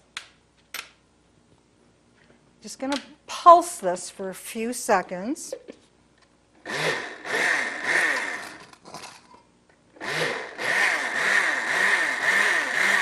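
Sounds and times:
blender motor running: 0:06.6 - 0:08.7, 0:10.0 - 0:13.0.

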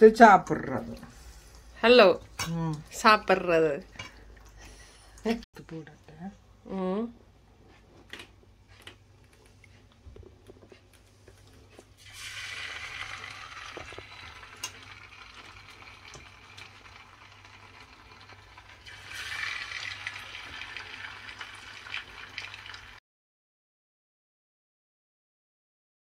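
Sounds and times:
fish sizzling in hot oil: 0:12.0 - 0:23.0.

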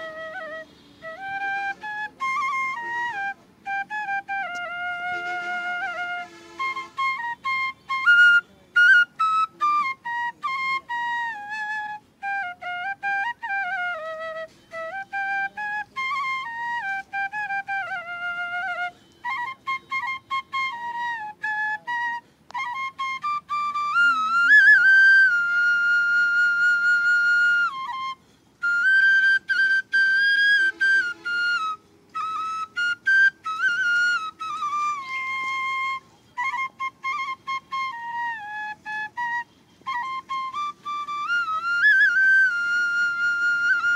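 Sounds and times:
solo flute melody: 0:00.0 - 0:43.9.

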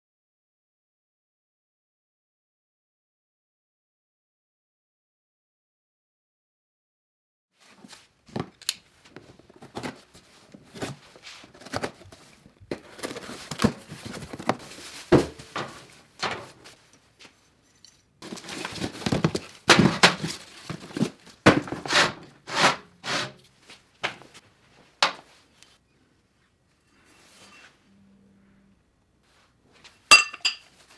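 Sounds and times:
cardboard rustling and scraping: 0:09.0 - 0:16.9, 0:18.2 - 0:24.4.

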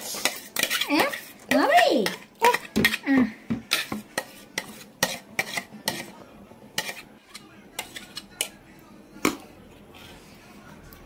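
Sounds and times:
metal spoon scraping steel jar: 0:00.1 - 0:03.0, 0:03.7 - 0:06.1.

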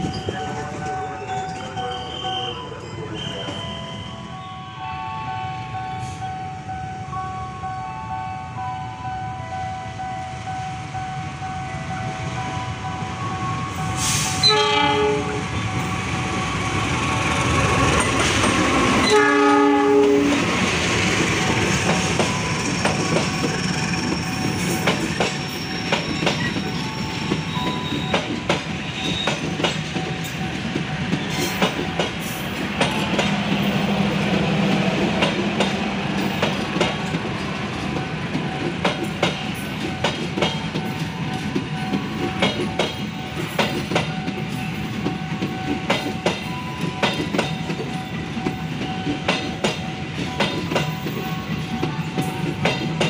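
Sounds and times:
train coaches rumbling past: 0:00.0 - 0:53.0
wheels clicking over rail joints: 0:17.3 - 0:53.0.

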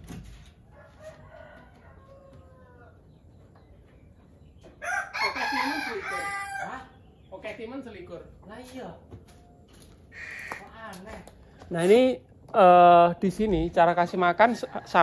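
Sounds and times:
rooster crowing: 0:00.7 - 0:03.0, 0:04.8 - 0:06.9.

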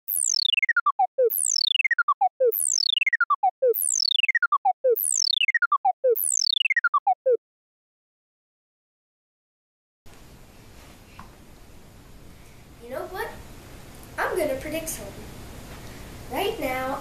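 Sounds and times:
short stepped beeps: 0:00.0 - 0:07.4
synth tone sweeping down: 0:00.0 - 0:07.4.

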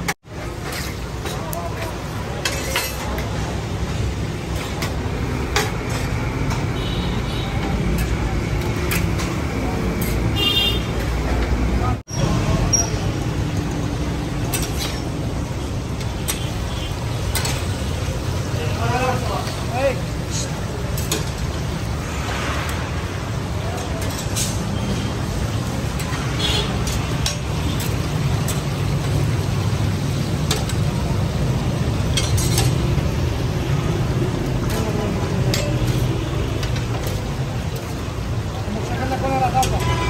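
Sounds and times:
food frying in oil: 0:00.0 - 0:40.0
traffic rumble: 0:00.0 - 0:40.0
metal spatula clinking on pan: 0:02.4 - 0:03.3
meat sizzling in oil: 0:25.0 - 0:38.3.

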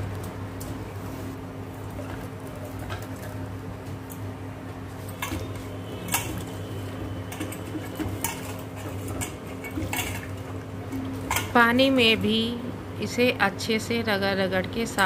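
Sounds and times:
water swishing in a bowl: 0:04.8 - 0:11.6.

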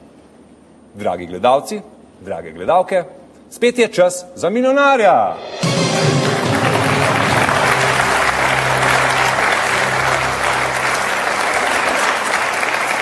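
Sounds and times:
quiz show theme music: 0:05.0 - 0:12.4
audience applauding: 0:05.6 - 0:13.0.

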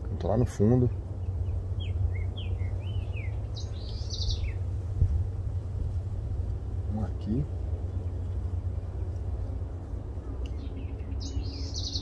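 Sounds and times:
steady low rumble: 0:00.0 - 0:12.0
bird singing whistled notes: 0:01.2 - 0:04.6, 0:10.5 - 0:12.0.

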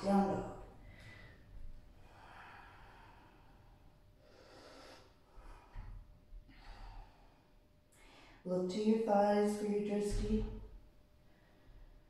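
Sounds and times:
woman breathing: 0:00.7 - 0:08.5.

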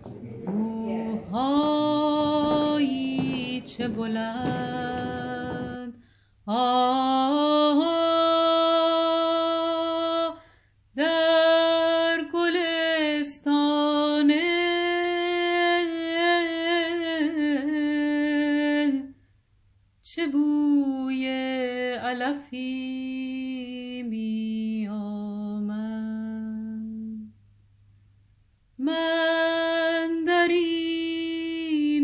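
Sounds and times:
rough noisy backing: 0:00.0 - 0:06.0.

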